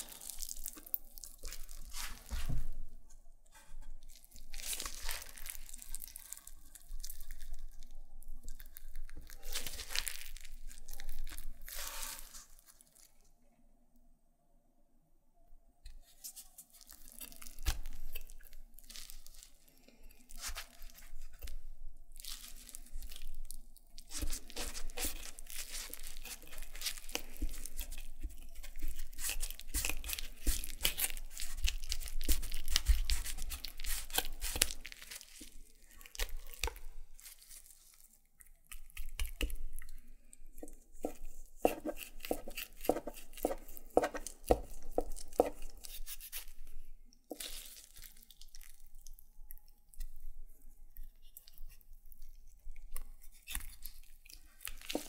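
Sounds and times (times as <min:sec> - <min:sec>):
wet crackling and tearing: 0:00.0 - 0:02.6, 0:04.0 - 0:13.2, 0:16.0 - 0:55.0
knife cutting raw chicken: 0:24.1 - 0:36.9, 0:40.6 - 0:46.6, 0:54.6 - 0:55.0.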